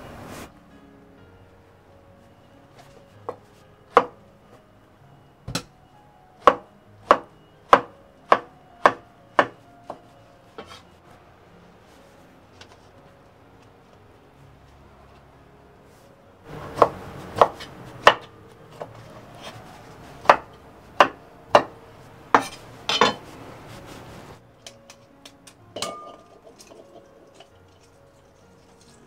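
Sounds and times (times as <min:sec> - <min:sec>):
knife chopping on wooden board: 0:06.5 - 0:09.5, 0:16.8 - 0:19.5, 0:20.2 - 0:21.7.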